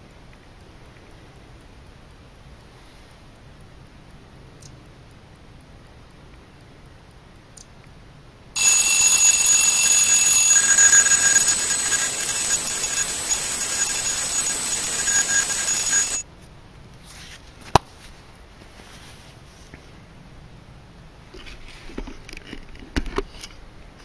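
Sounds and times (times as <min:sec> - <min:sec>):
alarm ringing: 0:08.6 - 0:16.2.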